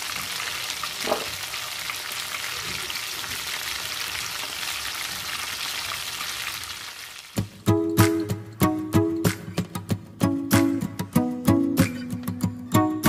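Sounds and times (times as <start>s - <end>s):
fish sizzling in hot oil: 0.0s - 7.6s.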